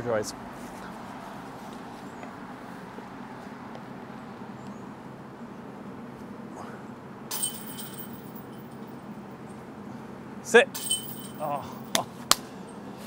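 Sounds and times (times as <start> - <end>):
chains jingling: 7.3 - 8.9, 10.8 - 11.9
metallic clank of chains: 7.3 - 9.0, 10.8 - 11.9.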